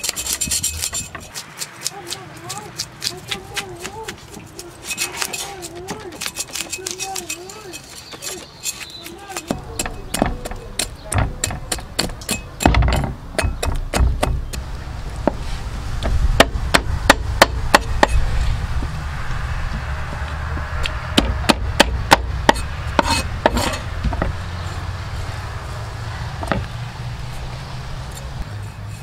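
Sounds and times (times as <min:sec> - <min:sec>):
cleaver scraping fish scales: 0:00.0 - 0:11.0, 0:22.6 - 0:23.9.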